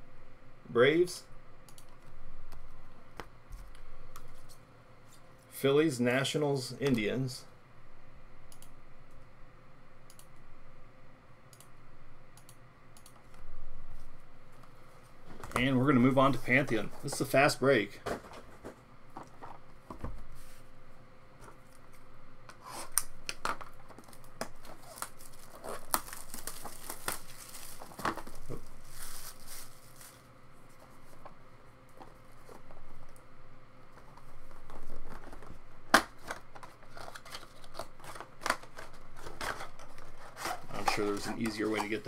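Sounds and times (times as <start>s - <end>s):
plastic wrapping crinkling: 23.6s - 31.3s, 34.1s - 42.0s.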